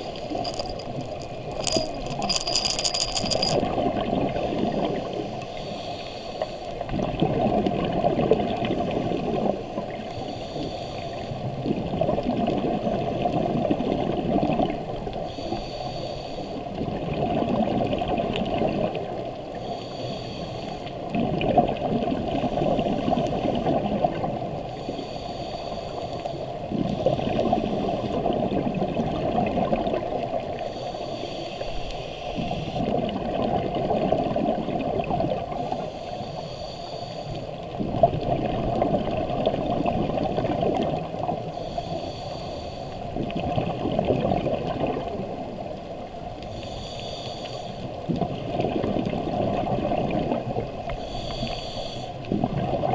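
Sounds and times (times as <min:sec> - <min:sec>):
gurgling exhaled bubbles: 0:26.7 - 0:30.5, 0:32.8 - 0:35.8, 0:37.8 - 0:41.5, 0:43.2 - 0:45.7, 0:48.1 - 0:50.8, 0:52.2 - 0:52.9.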